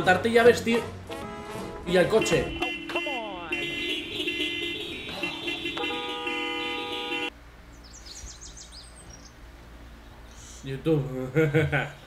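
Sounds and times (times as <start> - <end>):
car horns honking: 0.0 - 7.4.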